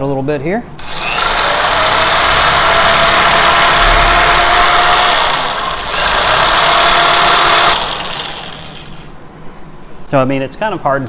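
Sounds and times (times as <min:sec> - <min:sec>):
jigsaw cutting wood: 0:00.8 - 0:09.1.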